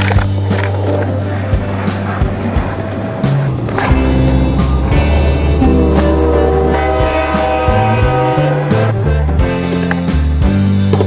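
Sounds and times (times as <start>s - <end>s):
bass line: 0.0s - 10.8s
guitar: 0.0s - 11.0s.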